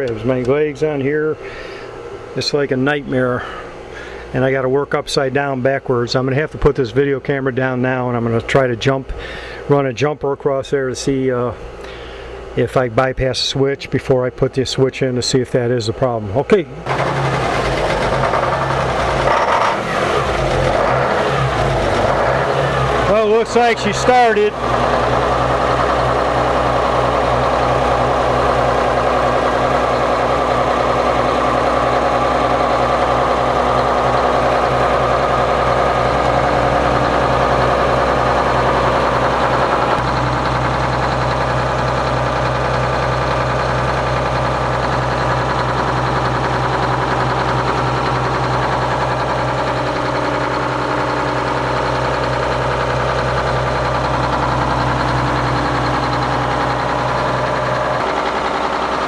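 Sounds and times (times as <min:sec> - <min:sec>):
diesel engine running: 0:16.7 - 0:59.0.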